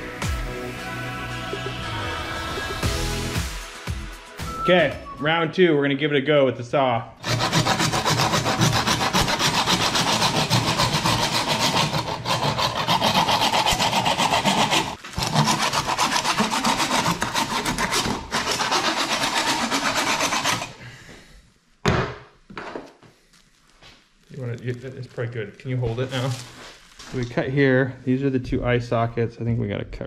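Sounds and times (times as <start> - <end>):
hand saw cutting bone: 7.2 - 20.8.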